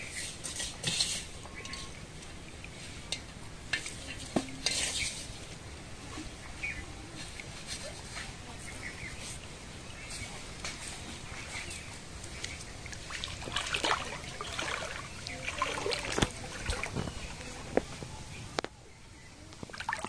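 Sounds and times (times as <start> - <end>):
steel bowl clinking: 3.0 - 5.4.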